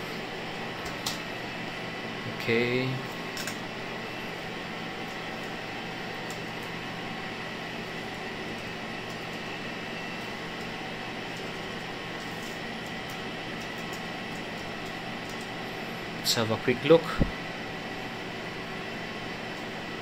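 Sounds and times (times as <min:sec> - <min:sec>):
server cooling fans whirring: 0:00.0 - 0:20.0
faint high whine: 0:01.6 - 0:03.2.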